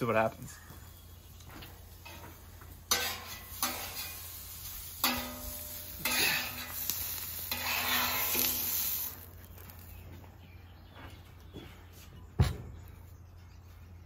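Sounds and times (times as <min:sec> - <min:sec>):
onions sizzling on a griddle: 0:01.8 - 0:10.0
metal spatula scraping: 0:02.9 - 0:04.4, 0:05.0 - 0:09.0.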